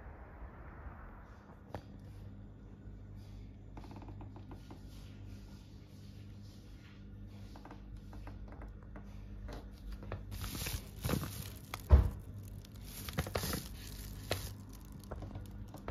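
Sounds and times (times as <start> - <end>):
foil bag rustling and crinkling: 10.2 - 15.9.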